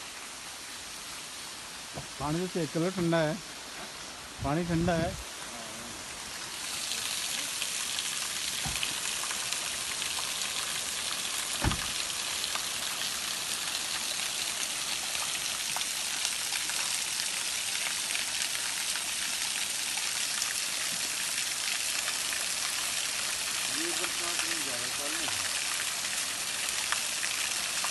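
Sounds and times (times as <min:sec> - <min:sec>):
waterfall splashing onto rocks: 0:00.0 - 0:27.9.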